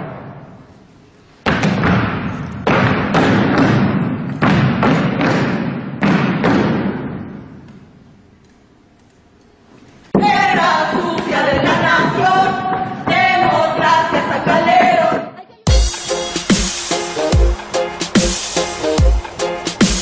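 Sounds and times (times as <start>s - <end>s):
heavy thumps ringing in a hall: 0.0s - 8.2s.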